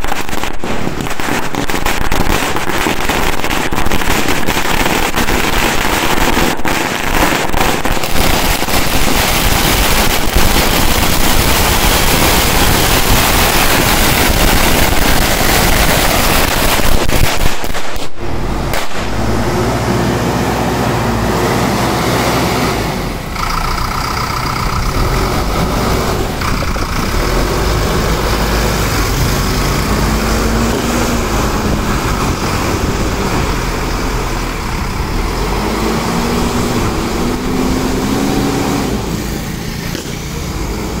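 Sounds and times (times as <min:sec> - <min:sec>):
firecrackers crackling: 0:00.0 - 0:41.0
passing traffic: 0:00.0 - 0:41.0
backhoe diesel engine running: 0:18.2 - 0:41.0.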